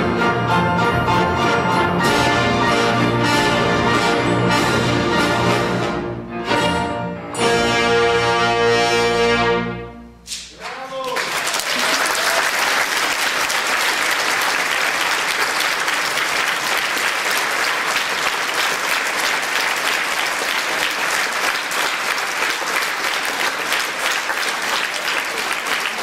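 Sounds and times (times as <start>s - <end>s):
audience applauding: 10.6s - 26.0s.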